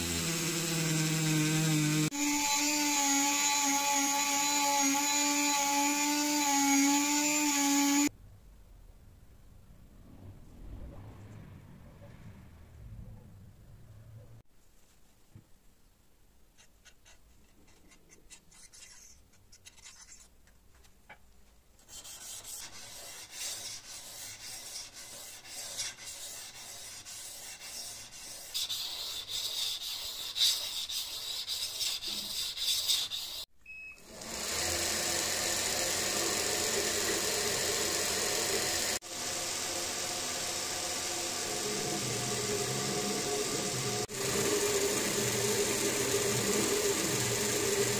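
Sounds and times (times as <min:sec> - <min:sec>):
belt grinder running: 0:00.0 - 0:08.1, 0:34.0 - 0:47.9
abrasive rubbing on steel blade: 0:21.9 - 0:33.5.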